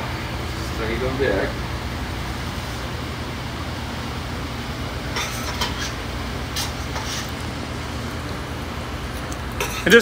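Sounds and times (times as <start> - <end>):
low hum of range and ventilation: 0.0 - 10.0
whisk scraping metal bowl: 6.6 - 7.4.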